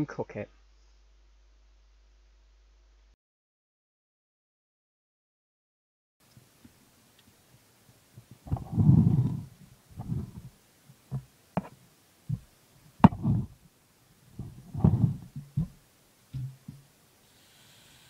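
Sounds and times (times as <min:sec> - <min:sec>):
muffled thumps: 0:08.5 - 0:10.5, 0:11.1 - 0:13.6, 0:14.4 - 0:16.9
sharp knocks on saucepan: 0:16.4 - 0:16.8.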